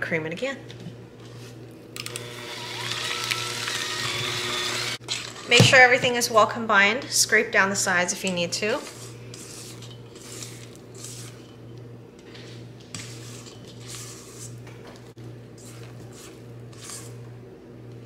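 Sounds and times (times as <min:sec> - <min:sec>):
spatula scraping mixing bowl: 0:01.1 - 0:01.7, 0:08.2 - 0:11.8, 0:12.4 - 0:17.3
steady low hum: 0:04.4 - 0:18.0.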